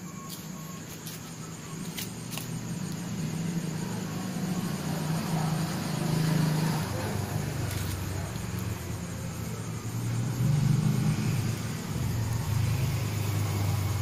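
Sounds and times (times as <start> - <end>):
vehicle engine rumble: 0.0 - 14.0.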